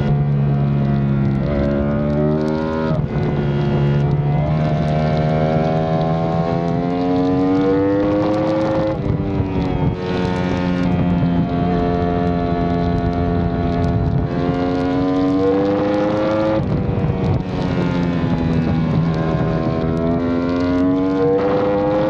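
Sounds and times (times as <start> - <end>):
motorcycle engine revving: 0.0 - 22.0
wind rush: 1.2 - 22.0.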